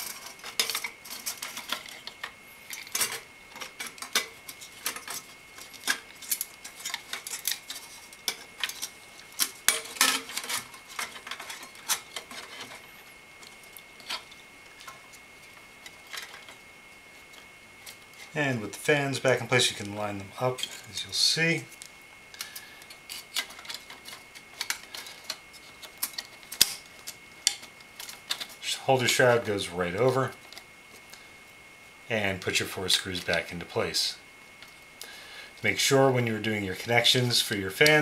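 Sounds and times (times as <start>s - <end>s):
plastic fan clicks and scrapes: 0.0s - 16.6s, 21.7s - 28.7s.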